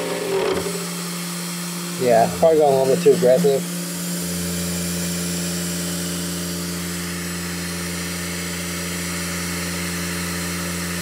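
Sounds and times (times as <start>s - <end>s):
router spindle humming: 0.0s - 11.0s.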